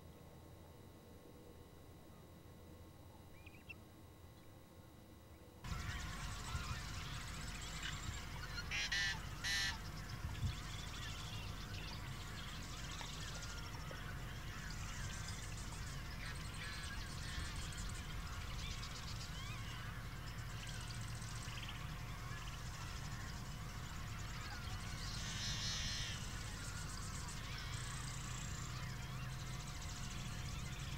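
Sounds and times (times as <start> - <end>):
birds chirping: 3.3 - 3.8, 5.6 - 30.9
harsh rattling bird calls: 5.6 - 30.9
steady low rumble: 5.6 - 30.9.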